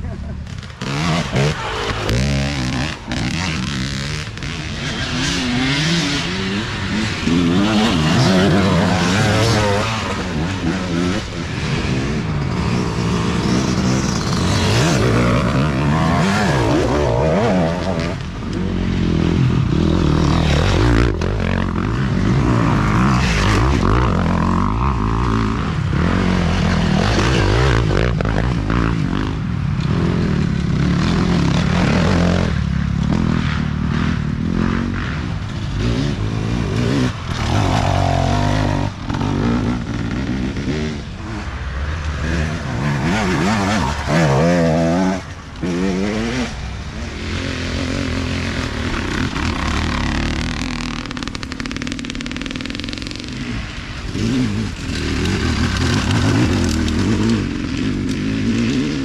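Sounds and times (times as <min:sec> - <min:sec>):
dirt bike engines revving: 0:00.0 - 0:59.0.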